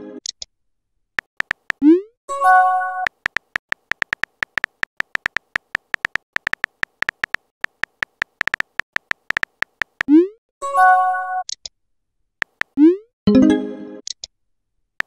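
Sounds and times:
keyboard typing beeps: 0:01.2 - 0:02.0, 0:02.7 - 0:10.3, 0:12.4 - 0:13.4.

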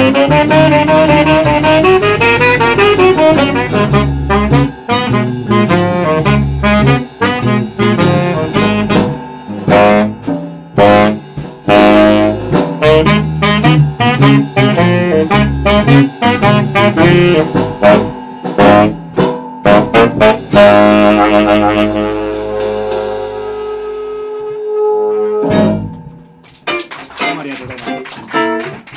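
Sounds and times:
electric bass: 0:00.0 - 0:26.5
jazz saxophone: 0:00.0 - 0:28.9
sharp percussive hits: 0:00.8 - 0:23.2.

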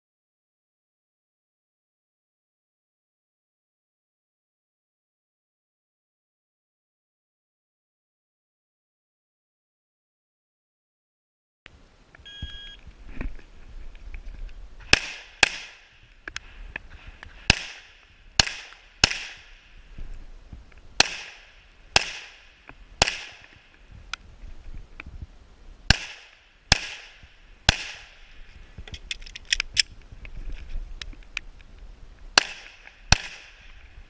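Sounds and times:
electronic timer beep: 0:12.2 - 0:12.8
pistol shots: 0:14.9 - 0:15.9, 0:17.5 - 0:19.6, 0:21.0 - 0:23.6, 0:25.9 - 0:28.2, 0:32.4 - 0:33.7.

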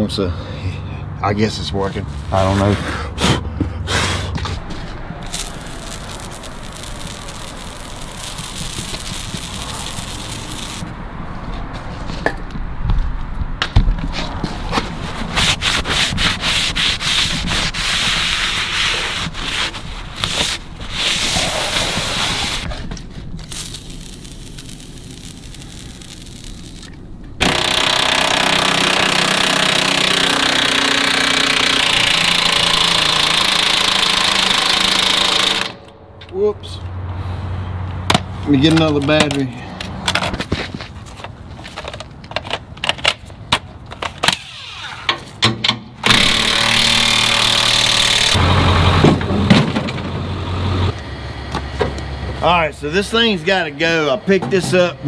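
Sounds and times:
impact driver running: 0:05.3 - 0:10.8, 0:27.4 - 0:35.8, 0:46.0 - 0:48.4
towel wiping steel edge: 0:15.0 - 0:22.7.

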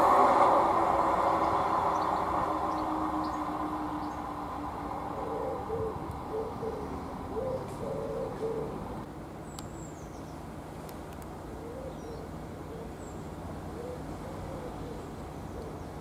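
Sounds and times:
pigeon cooing: 0:05.1 - 0:09.0, 0:11.6 - 0:13.0, 0:13.7 - 0:15.9.

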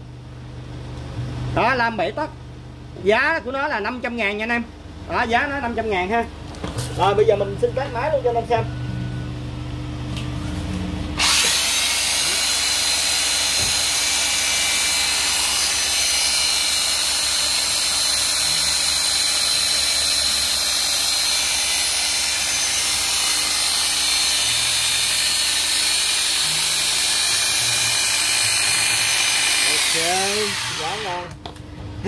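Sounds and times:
electric hedge trimmer buzzing: 0:11.2 - 0:31.3.

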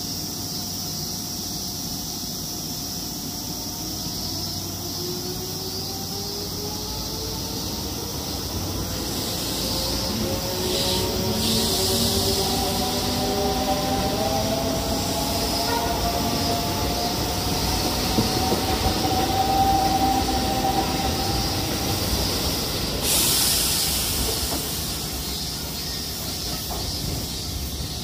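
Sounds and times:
electric train inverter whining: 0:02.6 - 0:28.0
steady hiss: 0:07.6 - 0:18.4, 0:20.5 - 0:28.0.

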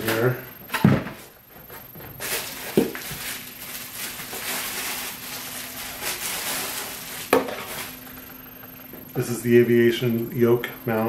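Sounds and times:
bubble wrap crinkling: 0:02.2 - 0:08.0.

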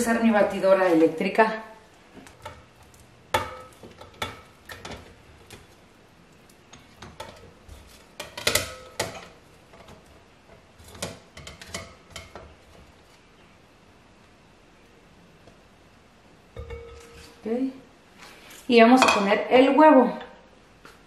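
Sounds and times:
dishware clinking: 0:16.6 - 0:17.4.

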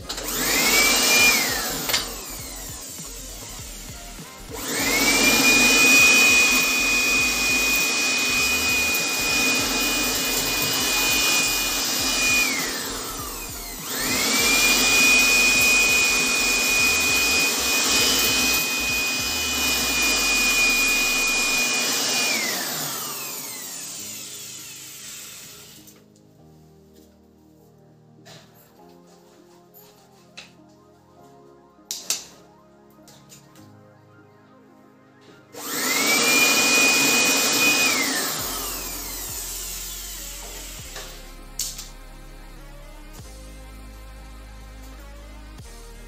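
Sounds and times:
electric air blower motor whine: 0:00.0 - 0:26.0, 0:35.2 - 0:42.0.

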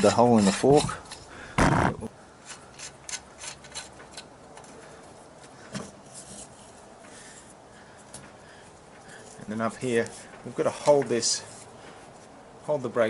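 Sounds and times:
light clicks of metal parts: 0:02.4 - 0:12.3.

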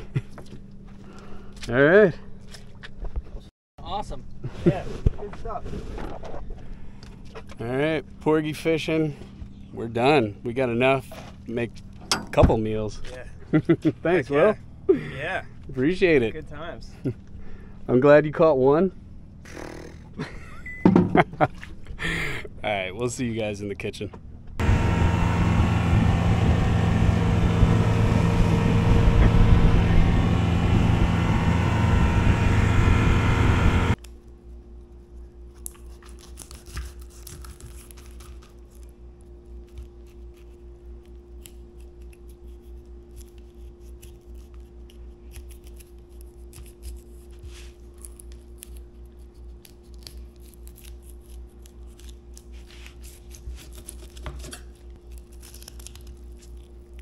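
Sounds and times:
boat motor running: 0:24.6 - 0:34.0
knife scraping and slicing fish: 0:35.6 - 0:38.8, 0:41.3 - 0:56.9.

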